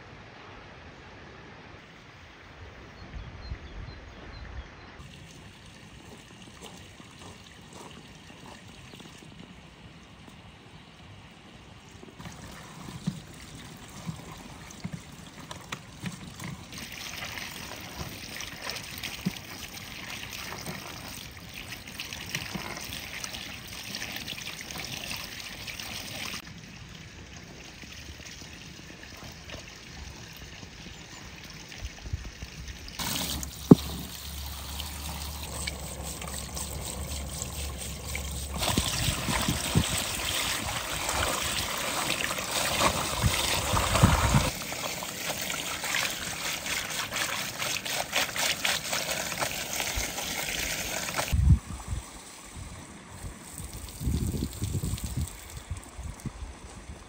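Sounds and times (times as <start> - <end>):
running water splashing: 5.0 - 10.5, 11.8 - 51.5.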